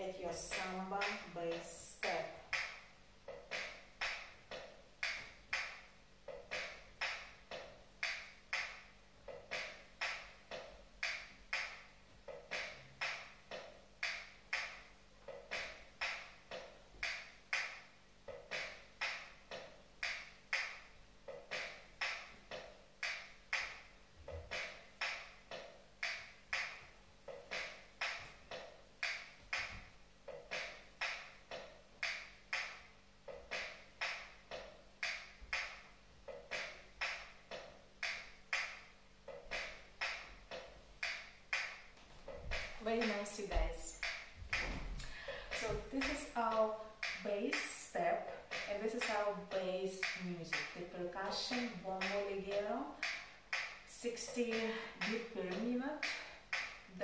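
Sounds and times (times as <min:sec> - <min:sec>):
bass drum playing slow rhythm: 0:39.2 - 0:52.6.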